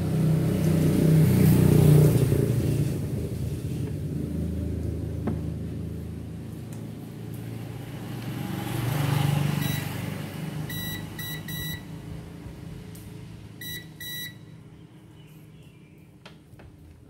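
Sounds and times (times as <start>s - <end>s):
multimeter beeping: 9.6s - 10.0s, 10.7s - 11.9s, 13.6s - 14.5s.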